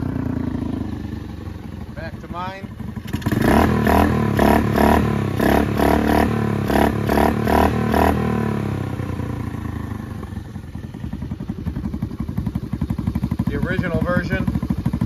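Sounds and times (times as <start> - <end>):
small engine revving and idling: 0.0 - 15.0.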